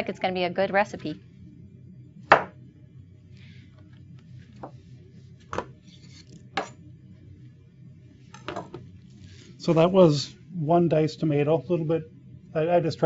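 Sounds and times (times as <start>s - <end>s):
knife chopping on cutting board: 2.3s - 2.5s.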